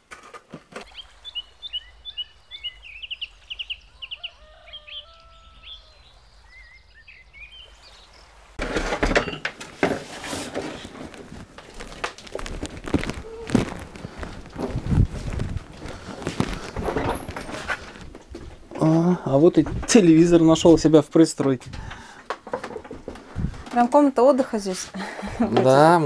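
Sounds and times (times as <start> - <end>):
knocks and clatter of belongings: 0.0 - 0.9, 8.6 - 18.9, 21.4 - 24.0
birds chirping and whistling: 0.8 - 8.4
footsteps: 8.6 - 19.0, 19.6 - 25.8.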